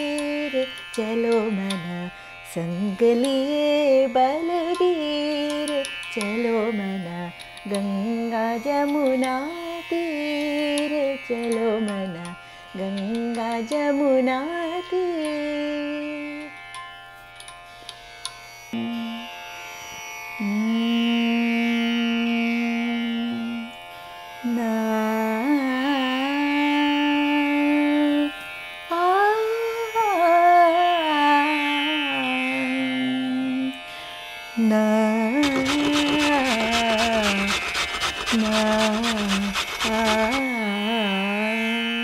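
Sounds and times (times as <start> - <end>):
woman singing devotional song: 0.0 - 16.6, 18.8 - 19.4, 20.4 - 23.8, 24.4 - 33.9, 34.6 - 42.0
steady drone: 35.4 - 40.9.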